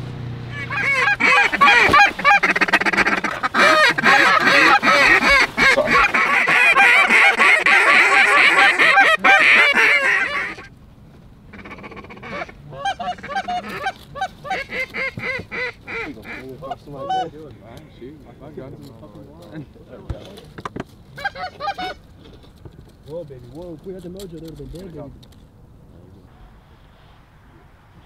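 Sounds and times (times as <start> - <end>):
goose calls honking: 0.5 - 10.7, 11.5 - 17.4, 21.2 - 22.0.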